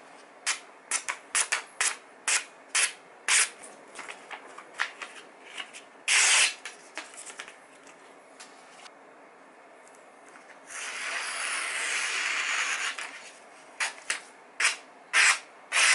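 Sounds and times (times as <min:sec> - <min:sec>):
paper rustling: 0:03.9 - 0:08.9
knife slicing paper: 0:10.7 - 0:15.9.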